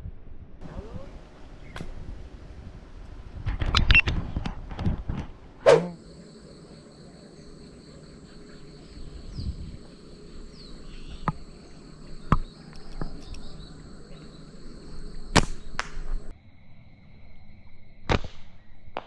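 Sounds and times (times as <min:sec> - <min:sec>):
sharp snaps: 0:01.7 - 0:02.0, 0:14.8 - 0:16.3
insects trilling: 0:05.7 - 0:19.0.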